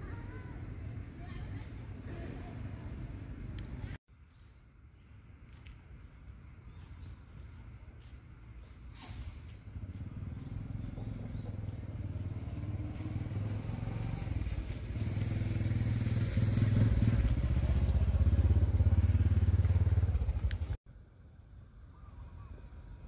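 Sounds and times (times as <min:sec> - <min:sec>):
vehicle engine rumbling: 0:06.2 - 0:21.8.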